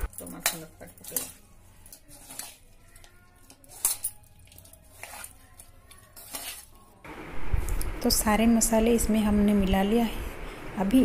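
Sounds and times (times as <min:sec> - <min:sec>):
bangles clinking on metal bowl: 0:00.0 - 0:06.6.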